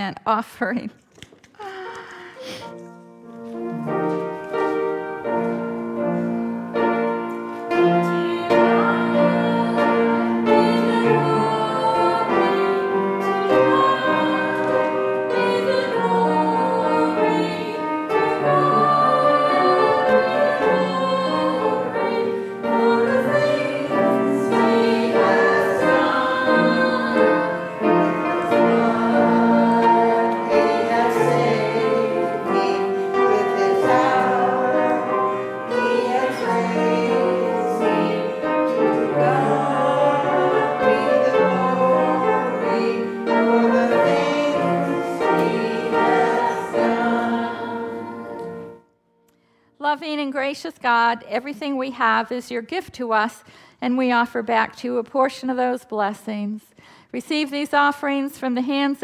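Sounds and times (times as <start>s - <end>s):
piano playing: 2.6s - 48.9s.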